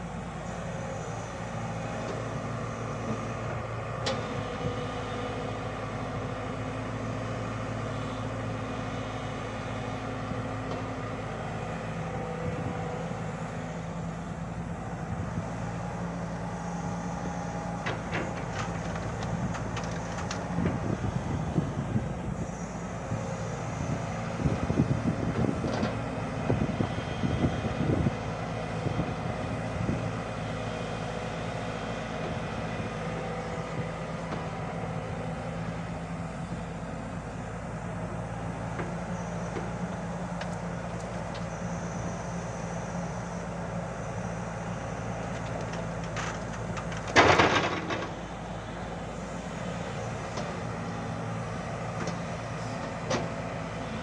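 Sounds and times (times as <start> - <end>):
excavator diesel engine running: 0.0 - 54.0
clunks and thuds: 17.8 - 20.9, 45.4 - 48.3, 52.0 - 53.5.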